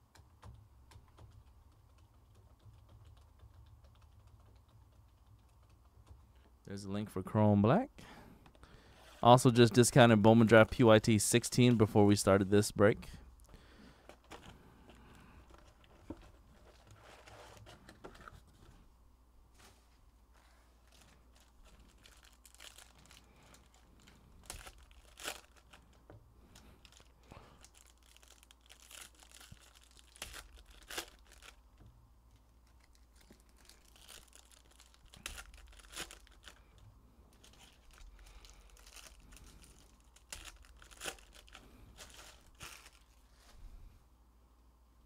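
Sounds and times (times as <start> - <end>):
foil wrappers crinkling: 20.8 - 31.6, 32.6 - 43.2.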